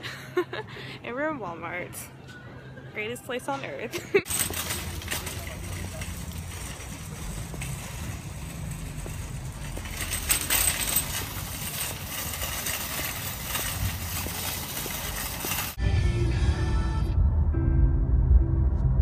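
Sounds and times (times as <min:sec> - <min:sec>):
cart wheels rumbling on asphalt: 0:04.2 - 0:15.8
wire basket rattling: 0:04.2 - 0:15.8.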